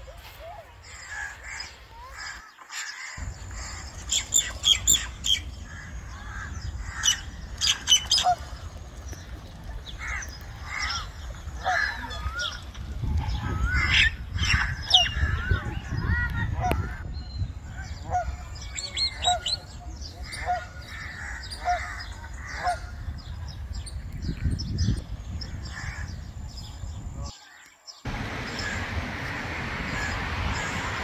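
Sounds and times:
waterbirds squawking: 0.5 - 26.4, 28.1 - 31.0
steady low rumble: 3.2 - 11.8, 28.1 - 31.0.

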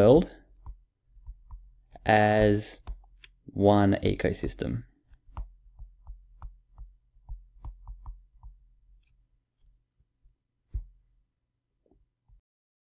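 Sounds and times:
stylus tapping on tablet screen: 0.5 - 3.4, 5.0 - 9.7, 10.7 - 11.0.

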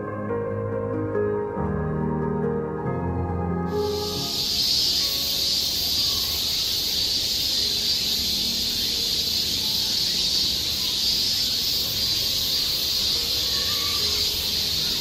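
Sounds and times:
insects droning in chorus: 3.7 - 15.0.

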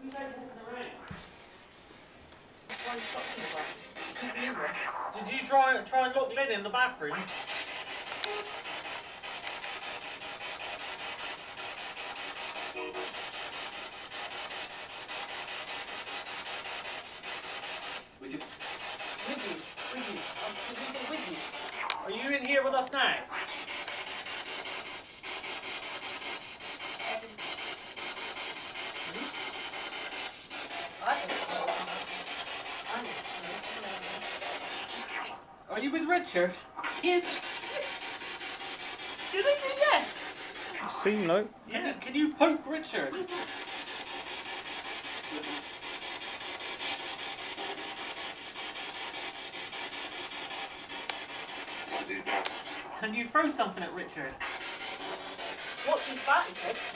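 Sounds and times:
pulsing radio static: 2.7 - 13.8, 18.5 - 26.1, 30.7 - 35.6, 36.2 - 38.2, 38.8 - 43.5
radio blip: 4.2 - 6.0, 21.2 - 23.5, 40.7 - 41.8.

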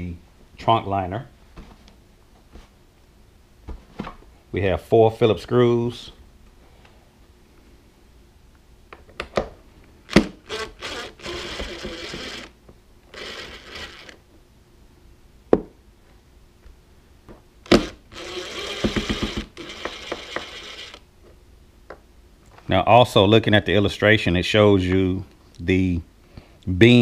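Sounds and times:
cordless driver running: 10.1 - 14.2, 17.7 - 21.0.

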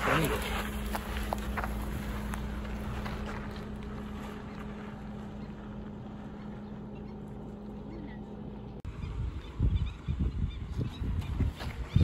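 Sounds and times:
car engine humming: 0.0 - 10.2
wind noise on microphone: 8.9 - 12.0.

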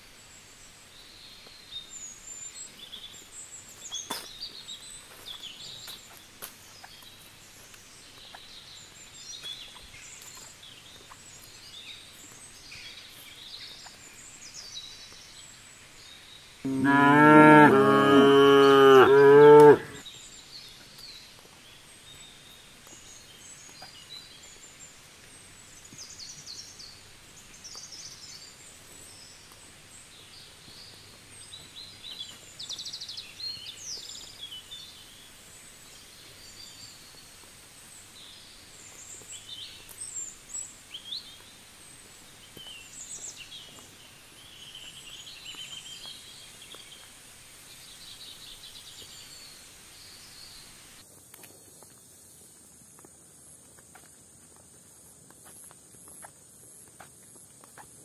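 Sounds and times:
small birds chirping: 0.0 - 58.0
cow mooing: 16.7 - 20.0.

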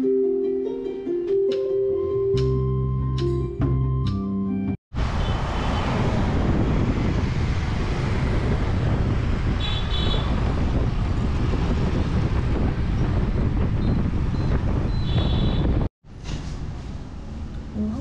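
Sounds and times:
car road and wind noise: 4.9 - 18.0
passing traffic: 4.9 - 18.0
wind buffeting microphone: 5.0 - 15.9.

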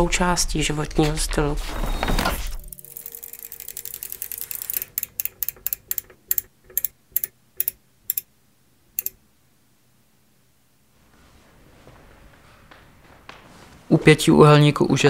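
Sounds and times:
mechanical clicks slowing: 2.6 - 8.3, 9.0 - 9.2.

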